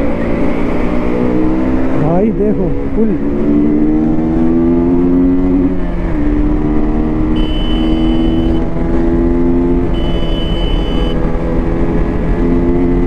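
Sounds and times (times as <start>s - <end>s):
motorcycle engine running: 6.8s - 13.0s
high-pitched beep: 7.3s - 8.6s, 9.9s - 11.2s.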